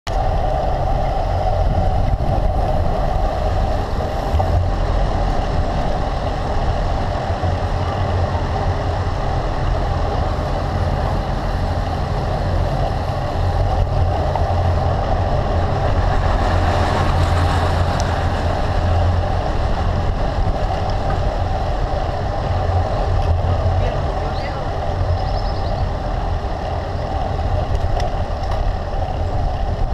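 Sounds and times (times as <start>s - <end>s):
bicycle road rumble: 0.0s - 29.9s
wind rush: 0.1s - 29.9s.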